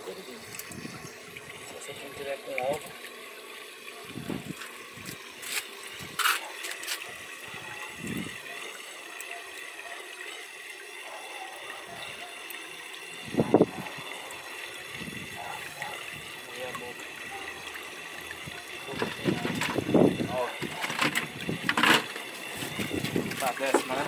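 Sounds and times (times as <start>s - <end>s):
water trickling: 0.0s - 24.0s
water splashes and knocks: 4.1s - 7.2s, 18.4s - 24.0s.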